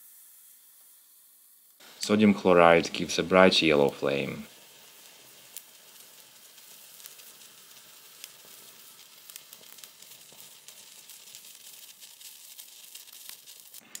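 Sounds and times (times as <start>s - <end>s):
flame hissing: 0.0s - 14.0s
small crackles: 2.8s - 14.0s.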